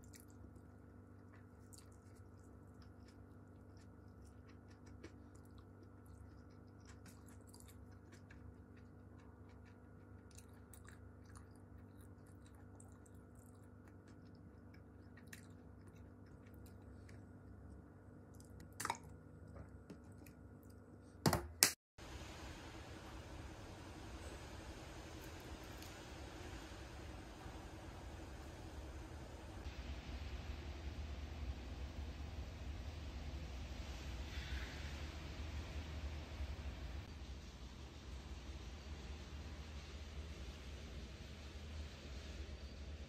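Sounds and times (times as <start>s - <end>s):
quiet chewing: 0.0s - 20.8s
steady low hum: 0.0s - 21.2s, 22.0s - 43.0s.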